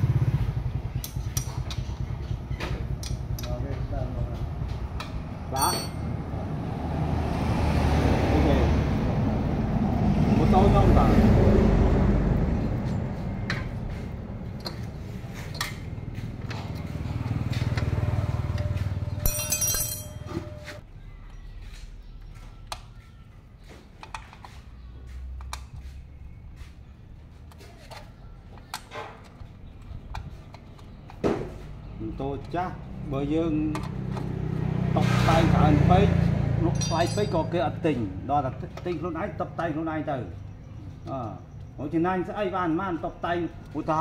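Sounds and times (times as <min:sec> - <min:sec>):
metal clinks of hand tools: 0:05.5 - 0:06.0, 0:19.2 - 0:20.7, 0:36.6 - 0:37.6.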